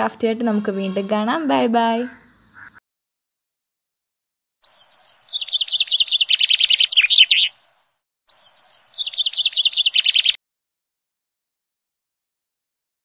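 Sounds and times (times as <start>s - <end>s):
songbird chirping: 0.0s - 2.8s, 4.6s - 10.4s.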